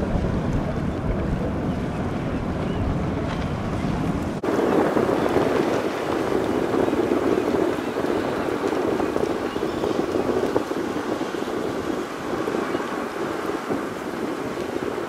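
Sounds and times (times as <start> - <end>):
ferry engines running: 0.0 - 9.3
propeller wash churning: 0.0 - 15.0
wind buffeting microphone: 0.0 - 15.0.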